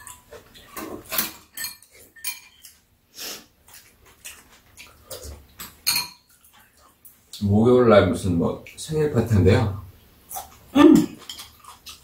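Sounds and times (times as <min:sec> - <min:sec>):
spoons clinking on ceramic bowls: 0:00.0 - 0:02.8, 0:05.6 - 0:06.4
people eating mouth sounds: 0:02.6 - 0:05.6, 0:10.2 - 0:12.0.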